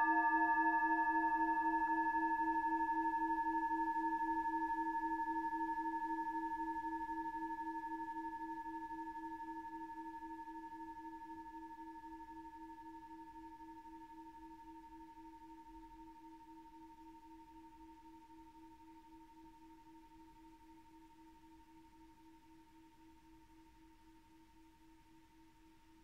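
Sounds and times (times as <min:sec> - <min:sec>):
singing bowl ringing: 0:00.0 - 0:03.5.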